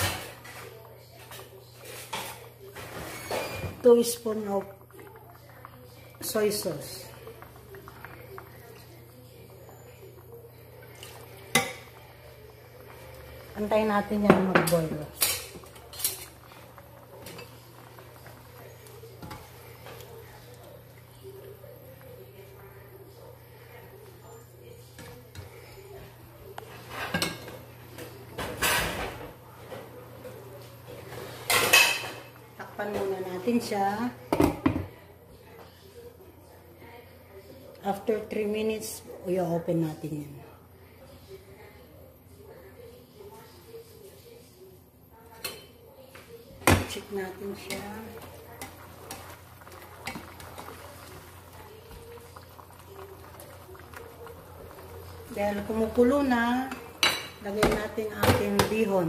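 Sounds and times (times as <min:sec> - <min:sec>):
kitchen scraping and clattering: 0:00.0 - 0:04.2, 0:26.6 - 0:29.3
broth bubbling in a pan: 0:00.0 - 0:34.8, 0:46.6 - 0:59.0.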